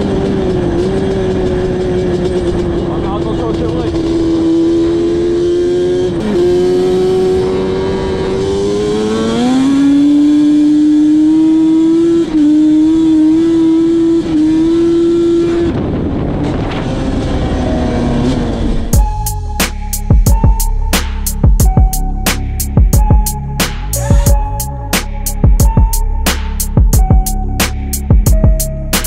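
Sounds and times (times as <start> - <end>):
two-stroke engine revving: 0.0 - 18.9.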